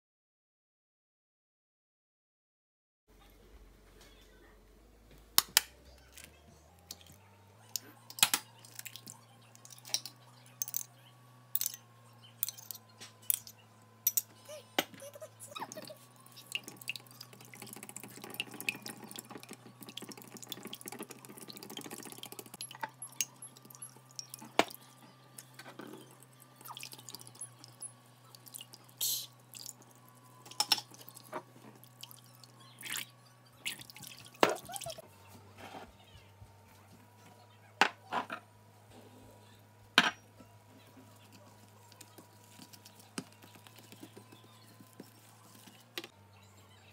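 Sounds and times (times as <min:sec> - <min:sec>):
wet whisking of eggs: 0:15.6 - 0:24.9, 0:26.0 - 0:35.0, 0:41.0 - 0:46.1.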